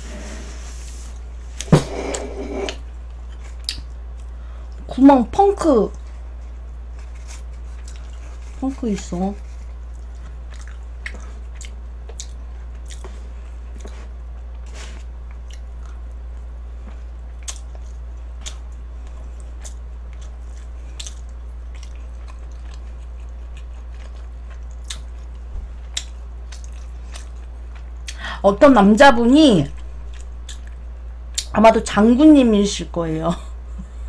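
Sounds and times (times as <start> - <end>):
steady low hum: 0.0 - 34.0
person chewing food: 5.9 - 28.2, 30.1 - 31.5.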